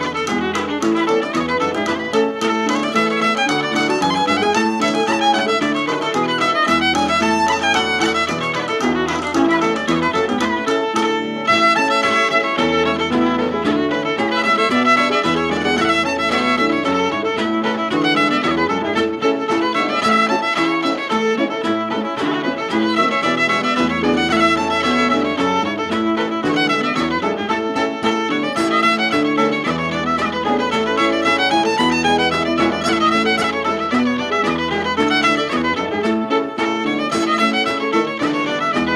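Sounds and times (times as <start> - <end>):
fiddle playing fast tune: 0.0 - 38.9.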